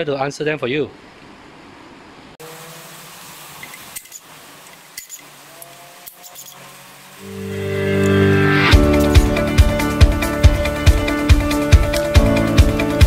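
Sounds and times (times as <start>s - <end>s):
music: 7.2s - 13.0s.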